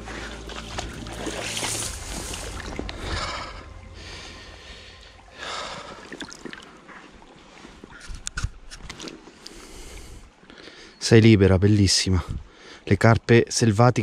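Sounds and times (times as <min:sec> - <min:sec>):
river water splashing: 0:00.0 - 0:08.0.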